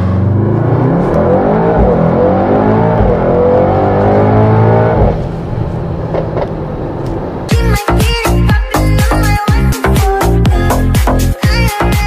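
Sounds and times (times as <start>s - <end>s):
car engine revving: 0.0s - 7.6s.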